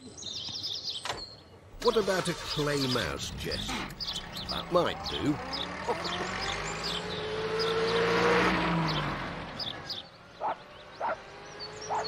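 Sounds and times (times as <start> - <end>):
birds chirping: 0.0 - 12.0
van engine driving off: 1.7 - 10.1
loud bird calls: 1.8 - 12.0.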